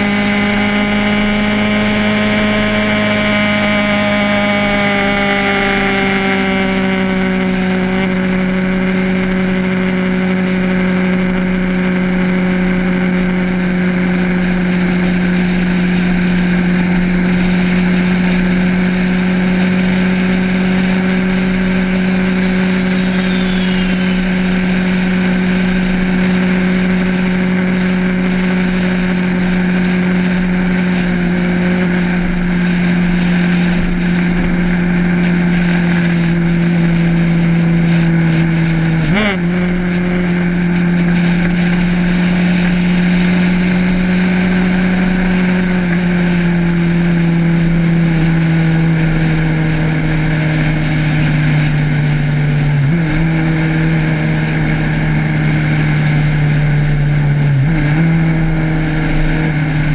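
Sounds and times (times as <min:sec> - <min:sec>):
motorcycle engine cruising: 0:00.0 - 0:59.9
wind rushing over microphone: 0:20.6 - 0:27.0.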